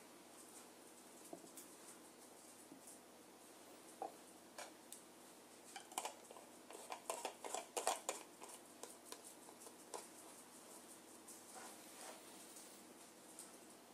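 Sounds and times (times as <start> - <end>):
jar lid clicking and scraping: 5.8 - 8.6.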